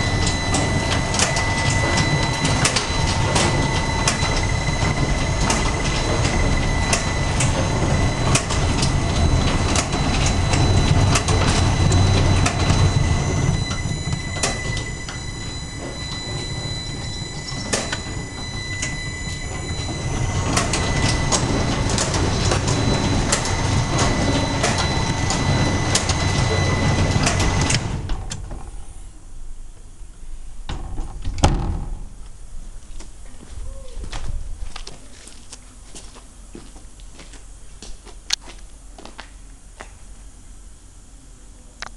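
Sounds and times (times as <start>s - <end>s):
machine mechanical clatter: 0.0s - 28.8s
high steady machine whine: 0.0s - 30.9s.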